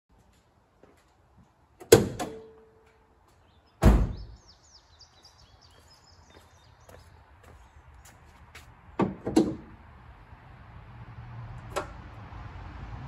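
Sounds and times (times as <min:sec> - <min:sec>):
car door slammed shut: 0:03.8 - 0:04.3.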